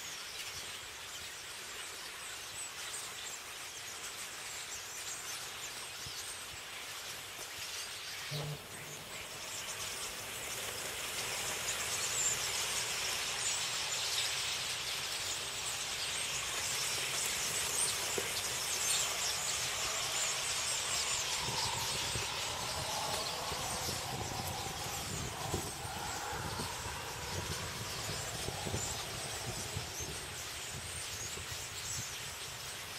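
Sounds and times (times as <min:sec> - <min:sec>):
flock of starlings chattering: 0:07.8 - 0:32.9
low rumble: 0:19.6 - 0:31.0.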